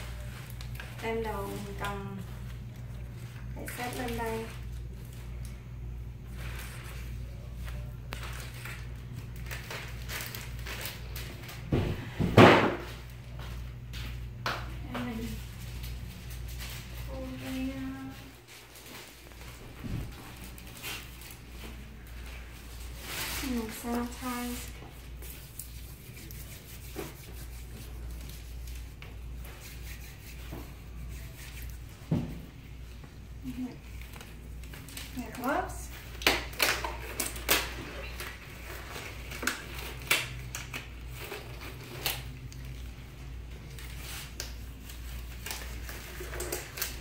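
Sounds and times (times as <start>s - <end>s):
steady low hum: 0.0s - 47.0s
hands rubbing together: 24.3s - 31.9s.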